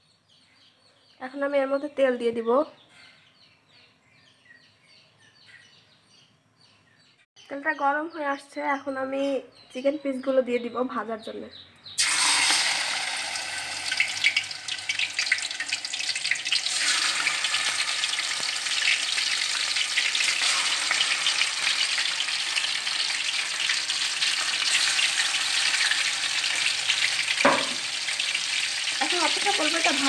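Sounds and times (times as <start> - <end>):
chicken sizzling in hot oil: 12.0 - 30.0.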